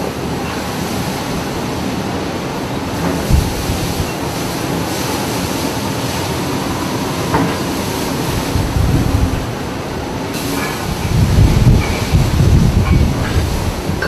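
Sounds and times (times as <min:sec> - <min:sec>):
heavy seas: 0:00.0 - 0:14.0
low pounding of waves: 0:00.0 - 0:14.0
storm wind rushing: 0:03.0 - 0:04.4, 0:08.1 - 0:14.0.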